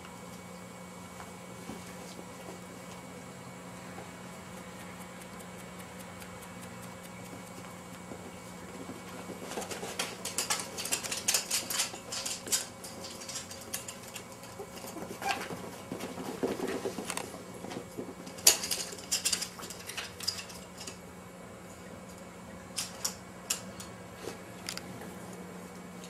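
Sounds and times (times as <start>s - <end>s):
puppy claws clicking on floor: 4.3s - 21.0s.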